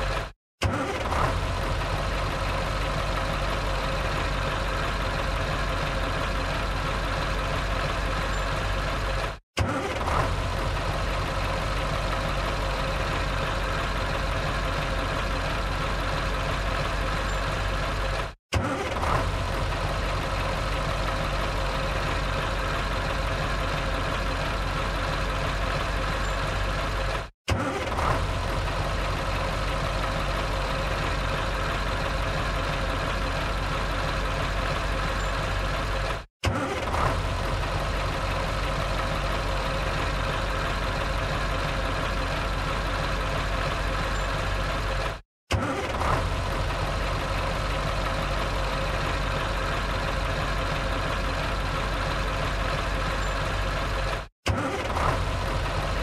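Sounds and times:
truck engine idling: 0.0s - 56.0s
engine start burst: 0.6s - 1.7s, 9.6s - 10.6s, 18.5s - 19.6s, 27.5s - 28.6s, 36.4s - 37.9s, 45.5s - 46.9s, 54.4s - 56.0s.

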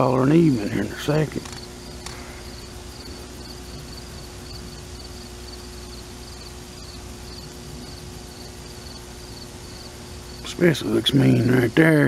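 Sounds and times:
faint low hum: 0.0s - 12.0s
insects chirping: 0.0s - 12.0s.

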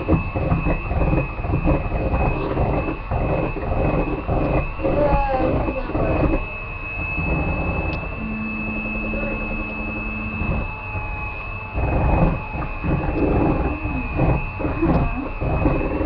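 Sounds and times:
beaters churning batter: 0.0s - 8.2s, 11.8s - 16.0s
electric hand mixer whining: 0.0s - 16.0s.

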